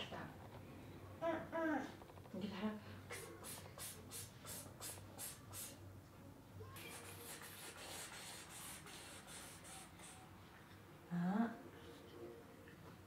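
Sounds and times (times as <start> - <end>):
toothbrush scrubbing teeth: 6.8 - 10.2.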